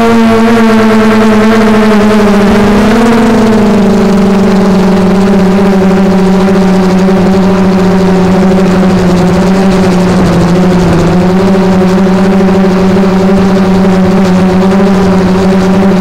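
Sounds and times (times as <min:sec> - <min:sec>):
drone propellers buzzing: 0:00.0 - 0:16.0.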